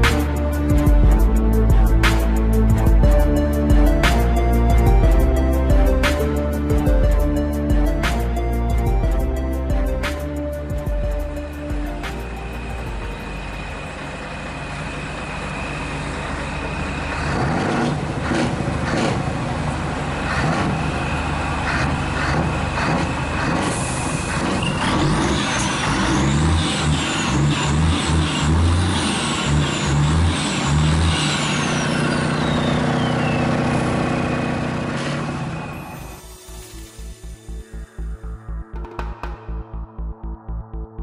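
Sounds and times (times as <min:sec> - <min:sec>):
pulsing low tones: 0:00.0 - 0:15.7, 0:36.4 - 0:41.0
truck engine running: 0:00.0 - 0:40.8
gliding high tones: 0:01.4 - 0:16.6, 0:35.7 - 0:39.9.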